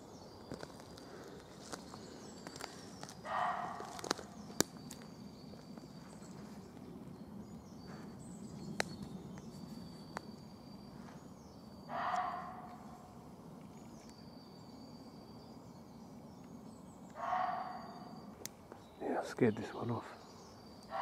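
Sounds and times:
faint high bird calls: 0:00.0 - 0:21.0
deer barking: 0:03.3 - 0:04.0, 0:11.9 - 0:12.7, 0:17.2 - 0:17.9.

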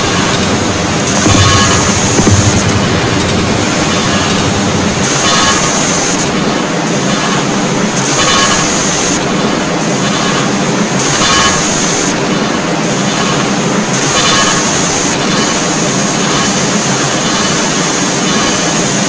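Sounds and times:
harsh electronic noise music: 0:00.0 - 0:06.4.

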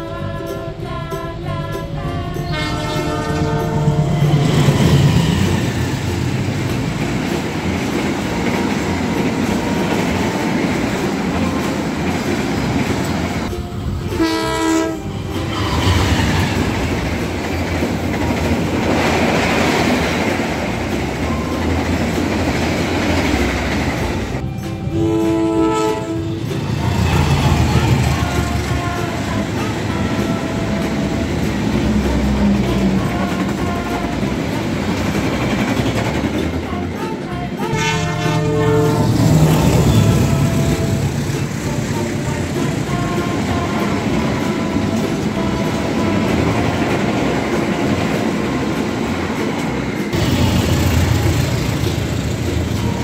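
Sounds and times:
train wheels rattling on rails: 0:00.6 - 0:53.0
locomotive horn blasts: 0:02.0 - 0:05.2, 0:13.4 - 0:17.0, 0:24.8 - 0:34.9, 0:36.6 - 0:47.3.

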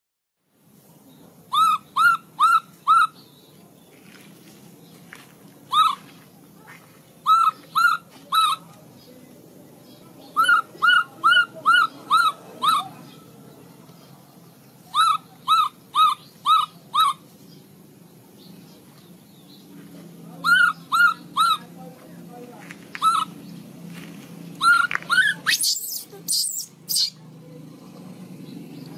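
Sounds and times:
baby macaque calling: 0:01.5 - 0:03.3, 0:05.7 - 0:06.1, 0:07.2 - 0:08.8, 0:10.3 - 0:13.2, 0:14.8 - 0:17.3, 0:20.4 - 0:21.8, 0:23.0 - 0:23.5, 0:24.6 - 0:27.2.

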